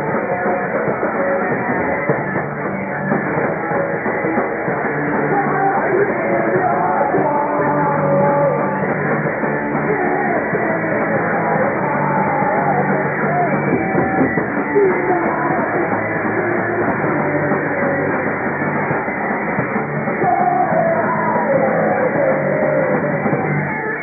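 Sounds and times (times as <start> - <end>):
muffled punk rock band: 0.0 - 24.0.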